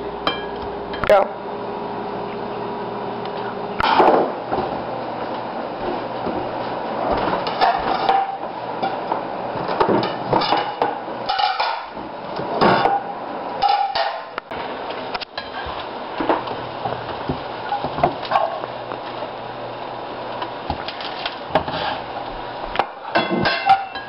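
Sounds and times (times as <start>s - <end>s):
ceramic plates clinking and clattering: 9.8s - 11.9s, 23.1s - 24.0s.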